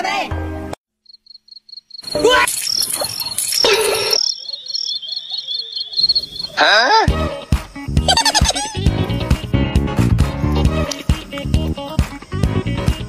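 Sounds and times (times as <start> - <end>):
high-pitched pulsed chirping: 1.1 - 7.1, 7.7 - 8.8
noisy sounds: 2.0 - 6.9
call rising in pitch: 2.0 - 7.1.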